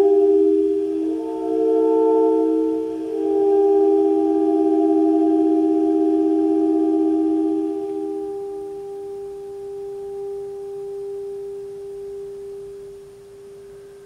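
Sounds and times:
saxophone held tones: 0.0s - 14.0s.

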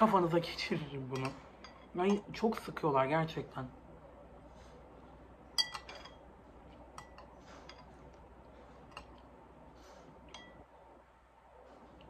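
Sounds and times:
metal spoon clinking glass bowl: 5.6s - 6.2s, 7.0s - 7.9s, 10.3s - 10.7s.

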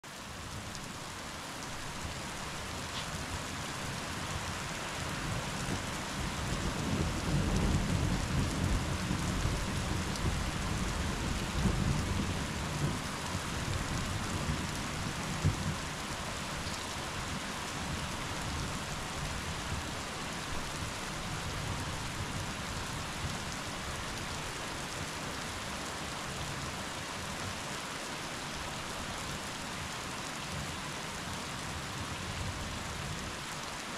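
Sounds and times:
rain heard through a window: 0.0s - 33.9s
low roll of thunder: 5.2s - 15.8s.

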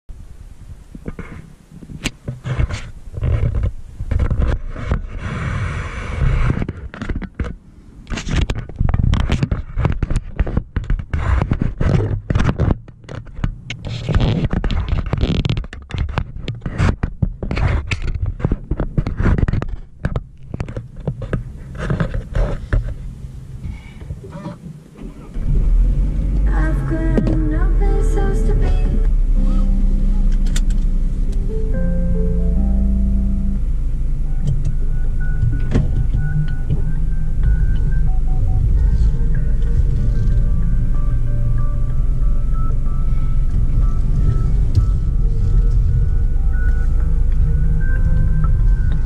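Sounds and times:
scraping against microphone: 1.0s - 25.7s, 33.9s - 49.0s
low rumble: 25.4s - 49.0s.

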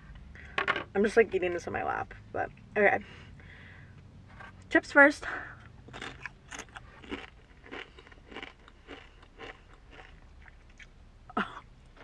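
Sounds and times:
tortilla chips crunching: 5.9s - 10.9s.

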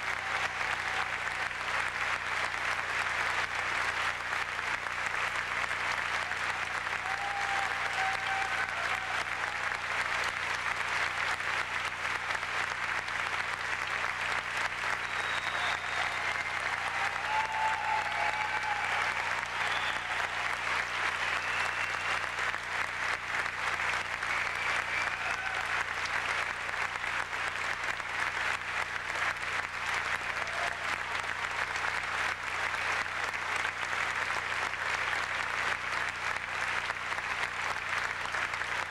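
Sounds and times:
audience applauding: 0.0s - 38.9s
short cheers: 6.1s - 9.8s, 14.8s - 22.6s, 24.0s - 26.4s, 30.1s - 31.4s.

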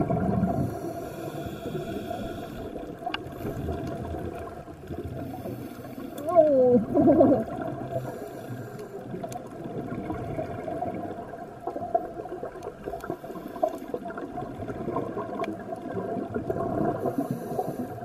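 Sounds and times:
bubbling exhaled air: 0.0s - 18.0s
regulator inhalation hiss: 0.6s - 2.7s.

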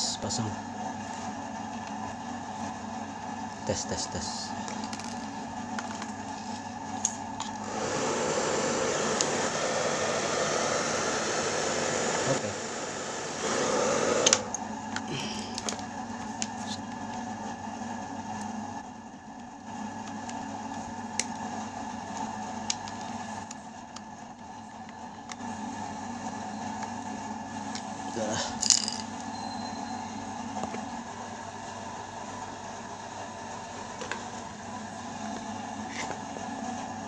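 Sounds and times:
hair dryer blowing: 7.6s - 14.6s
hair dryer switch click: 9.1s - 9.4s.

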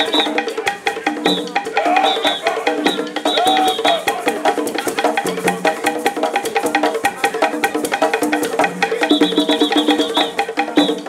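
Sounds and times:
upbeat music with wood-block percussion: 0.0s - 11.0s.

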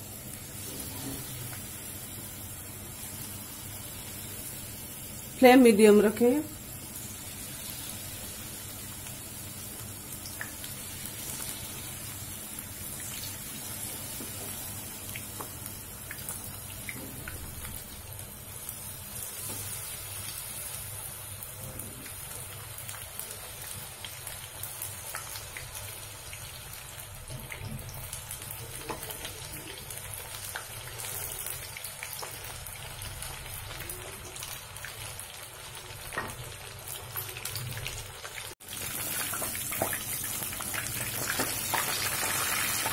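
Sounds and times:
deep-frying sizzle with pops: 0.0s - 42.9s.

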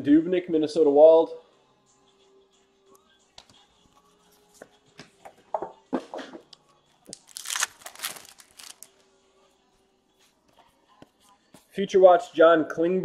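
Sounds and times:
trading cards shuffled: 7.1s - 8.9s
foil wrapper crinkling: 7.1s - 9.0s.

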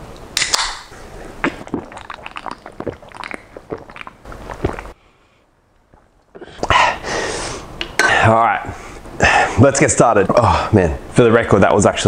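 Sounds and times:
person gulping water: 1.4s - 5.0s, 5.8s - 6.8s
loud breath: 6.4s - 7.7s.

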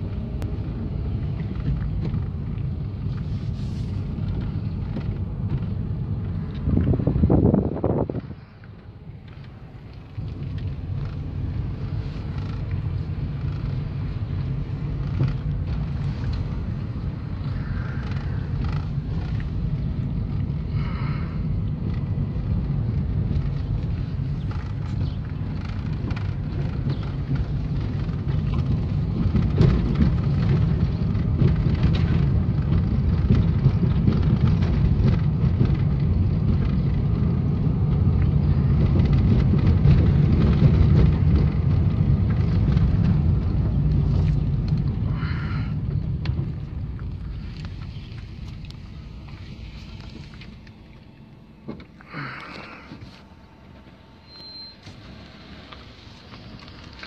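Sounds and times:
car and tyres rumbling: 0.0s - 57.0s.

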